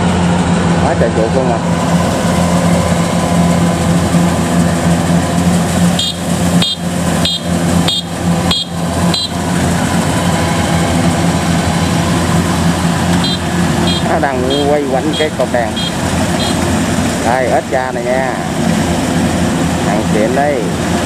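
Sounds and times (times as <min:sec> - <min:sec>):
combine harvester diesel engine: 0:00.0 - 0:21.0
threshing machinery: 0:00.0 - 0:21.0
short high chirps: 0:13.2 - 0:16.6.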